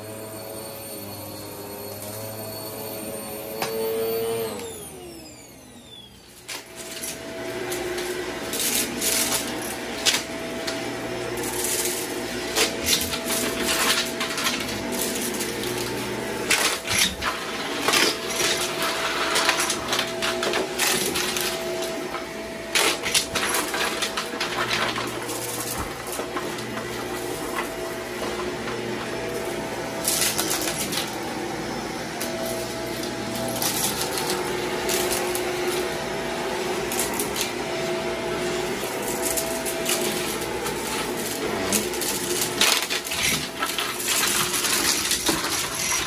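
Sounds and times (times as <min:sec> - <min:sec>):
vacuum cleaner motor whine: 0:00.0 - 0:46.0
debris clicking into vacuum: 0:11.5 - 0:31.2, 0:38.9 - 0:46.0.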